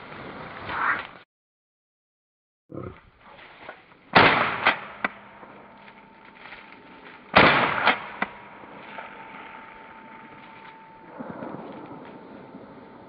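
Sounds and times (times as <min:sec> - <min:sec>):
shotgun shots: 0:04.1 - 0:05.4, 0:07.3 - 0:09.2.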